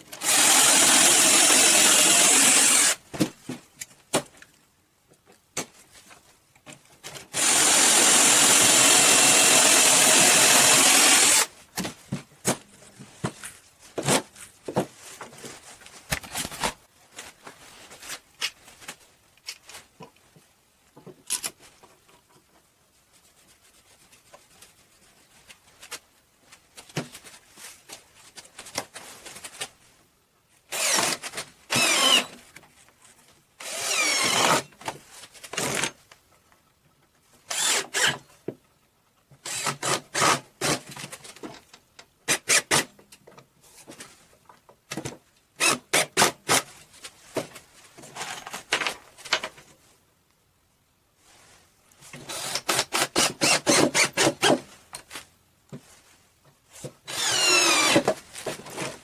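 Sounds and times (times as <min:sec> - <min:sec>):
cordless drill driving screws: 0:00.1 - 0:03.0, 0:07.3 - 0:11.5, 0:30.7 - 0:32.4, 0:33.6 - 0:34.7, 0:37.5 - 0:38.2, 0:39.4 - 0:40.8, 0:52.3 - 0:54.6, 0:57.1 - 0:58.1.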